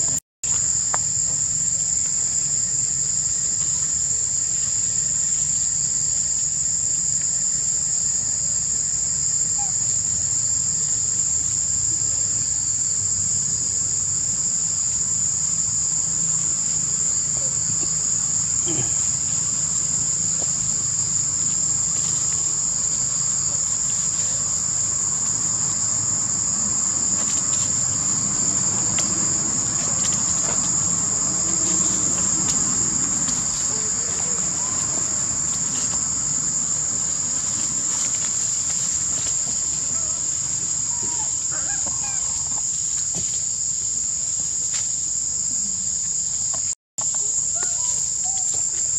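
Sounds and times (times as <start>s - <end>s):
insects droning: 0.0s - 48.9s
faint rustles and ticks: 16.3s - 43.7s.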